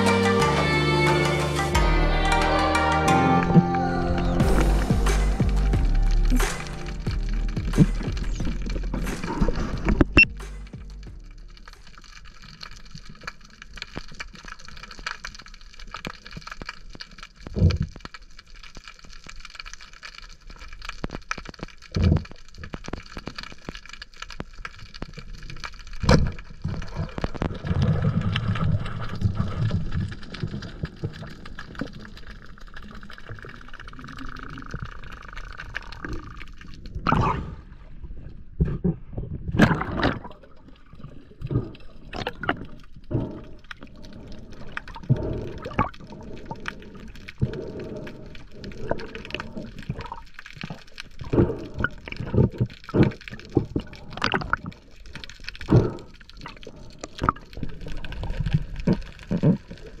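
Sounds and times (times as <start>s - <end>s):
water sloshing and gurgling: 4.2s - 60.0s.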